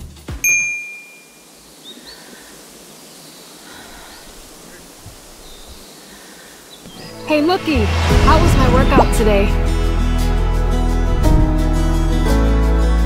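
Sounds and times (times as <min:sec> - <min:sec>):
bright chime: 0:00.4 - 0:01.5
faint bird chirps: 0:00.8 - 0:07.4
leaves rustling: 0:00.8 - 0:10.0.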